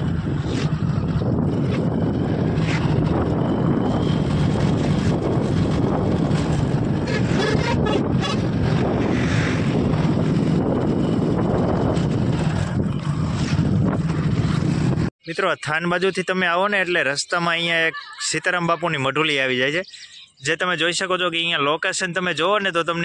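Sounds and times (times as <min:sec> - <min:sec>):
motorcycle engine running: 0:00.0 - 0:15.1
wind buffeting microphone: 0:00.0 - 0:15.1.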